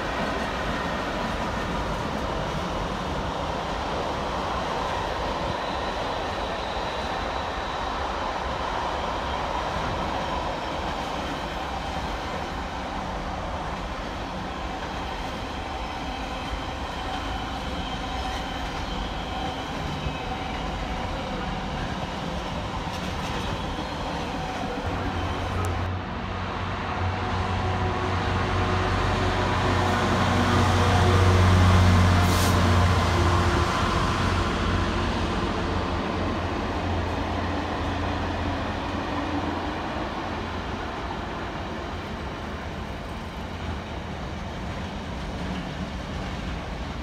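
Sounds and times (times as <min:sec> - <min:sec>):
freight train rumbling past: 0:00.0 - 0:47.0.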